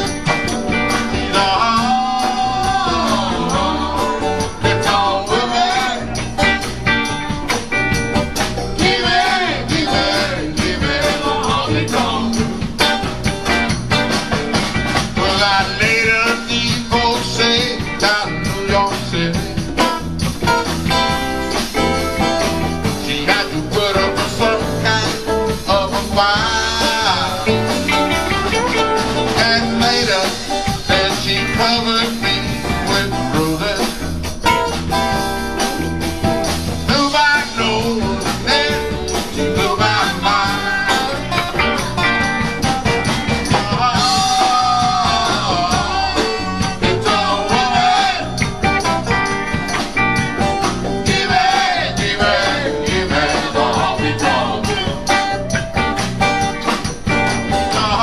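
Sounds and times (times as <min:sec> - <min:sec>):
live blues-rock band: 0:00.0 - 0:58.0
man singing: 0:01.0 - 0:06.4, 0:08.7 - 0:13.0, 0:15.1 - 0:20.0, 0:22.8 - 0:28.1, 0:29.1 - 0:34.7, 0:36.8 - 0:41.9, 0:43.4 - 0:48.8, 0:51.0 - 0:55.4, 0:57.6 - 0:58.0.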